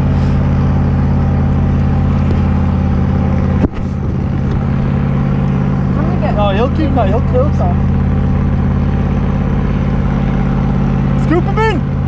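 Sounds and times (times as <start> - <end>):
small outboard motor running: 0.0 - 12.0.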